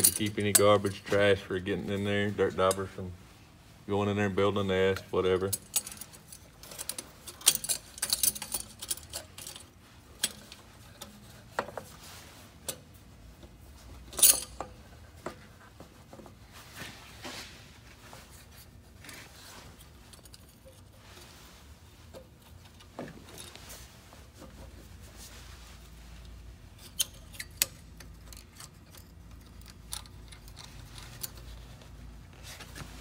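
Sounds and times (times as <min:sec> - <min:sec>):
metal pipe clinks and scrapes: 0:00.0 - 0:03.0, 0:04.8 - 0:13.0, 0:13.8 - 0:16.4, 0:18.3 - 0:24.7, 0:26.7 - 0:32.0.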